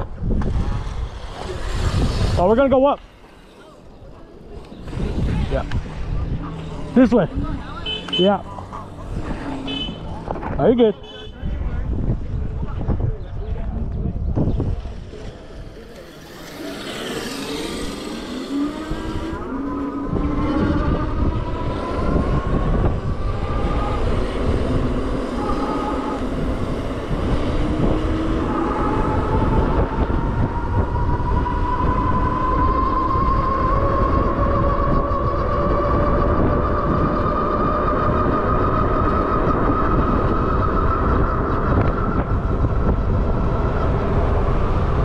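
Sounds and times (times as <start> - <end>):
wind rumble on microphone: 0.0 - 45.0
electric motor whining: 15.0 - 44.3.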